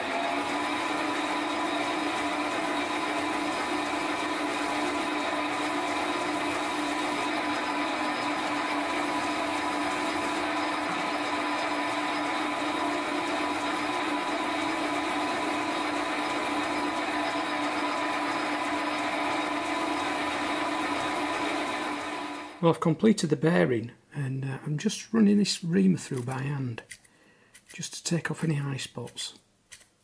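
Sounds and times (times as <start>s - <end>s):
metal part polished on buffing wheel: 0.0s - 22.4s
metal lathe running: 0.0s - 22.6s.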